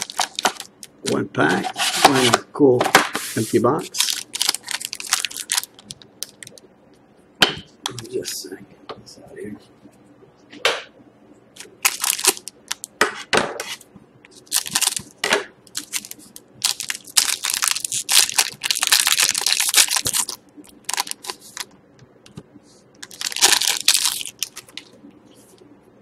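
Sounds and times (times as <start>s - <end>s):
foil wrapper crinkling and tearing: 0.0s - 0.7s, 3.9s - 6.6s, 11.6s - 12.9s, 14.4s - 21.7s, 23.0s - 24.9s.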